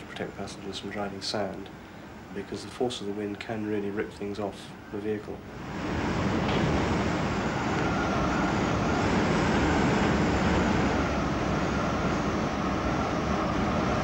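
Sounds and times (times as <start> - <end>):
strong wind rushing: 5.4 - 14.0
faint wavering whistle: 7.3 - 10.0.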